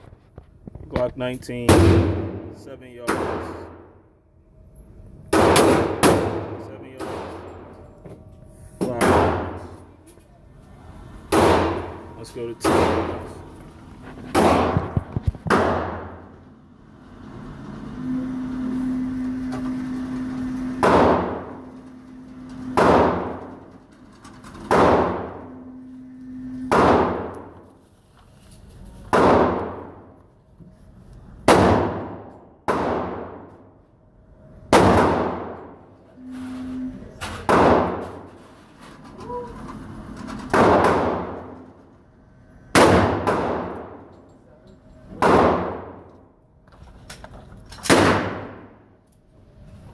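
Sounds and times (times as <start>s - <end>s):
pistol shots echoing indoors: 5.3s - 7.9s, 8.9s - 9.9s, 11.3s - 13.5s, 14.3s - 16.4s, 20.7s - 21.7s, 22.4s - 23.7s, 24.5s - 27.6s, 29.1s - 30.2s, 31.4s - 33.6s, 34.7s - 35.8s, 37.4s - 38.2s, 40.5s - 41.6s, 42.7s - 44.1s, 45.1s - 46.2s, 47.8s - 48.9s
target carrier motor humming: 16.1s - 24.0s.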